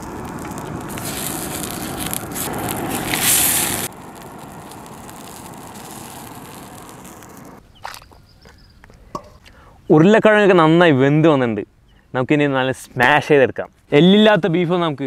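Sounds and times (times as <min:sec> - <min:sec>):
pot boiling with hiss and crackle: 0:00.0 - 0:07.7.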